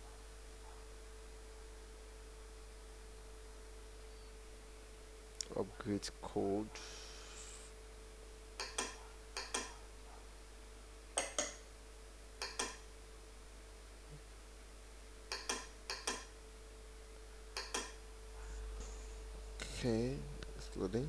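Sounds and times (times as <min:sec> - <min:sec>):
faint steady hum: 0:00.0 - 0:21.0
computer mouse clicking: 0:12.4 - 0:12.8, 0:15.3 - 0:16.3.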